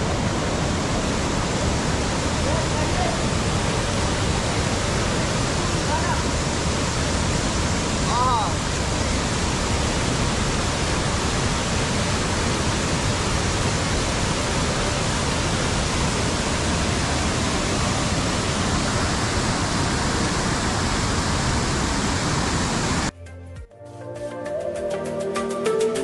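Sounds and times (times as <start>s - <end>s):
waterfall rushing: 0.0s - 23.1s.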